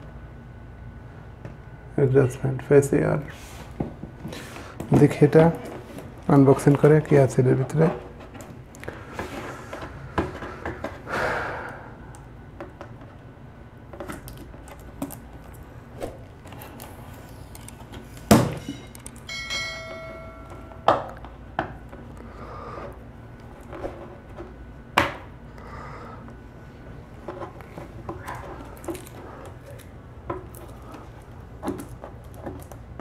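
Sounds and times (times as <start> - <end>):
short bell-like chime: 19.3 - 20.9.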